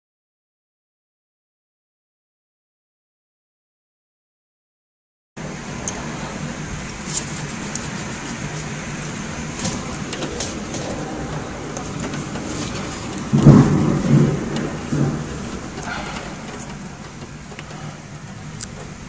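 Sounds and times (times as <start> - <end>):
rain: 5.4 - 19.0
thunder rumble: 5.4 - 19.0
wind: 5.4 - 19.0
raindrops ticking: 6.8 - 19.0.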